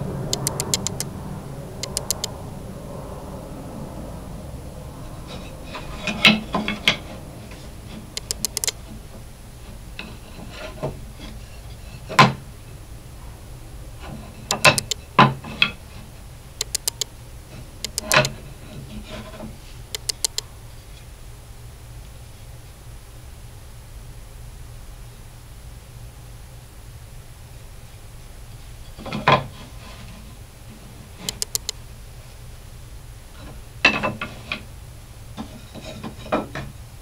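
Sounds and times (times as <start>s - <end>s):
steady low hum: 0.0s - 37.0s
light clicks: 0.3s - 1.1s, 1.8s - 2.3s, 8.2s - 8.8s, 14.5s - 15.0s, 16.6s - 17.1s, 17.8s - 18.3s, 19.9s - 20.4s, 31.3s - 31.8s.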